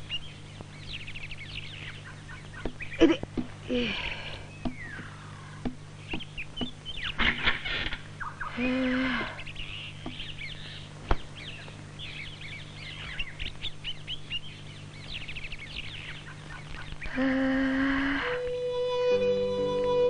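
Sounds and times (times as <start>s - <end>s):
small birds chirping: 0.0s - 18.6s
held low note: 17.2s - 20.0s.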